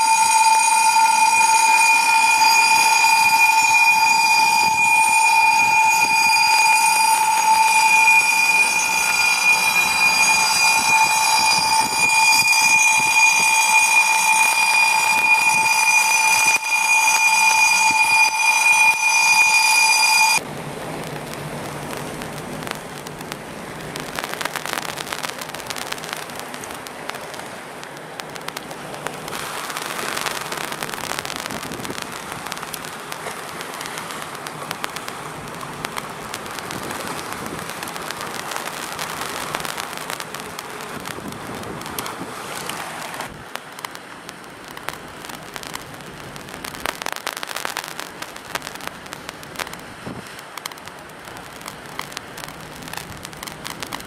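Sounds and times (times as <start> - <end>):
loud high-pitched tone: 0.0 - 20.4
even rushing noise: 0.0 - 43.6.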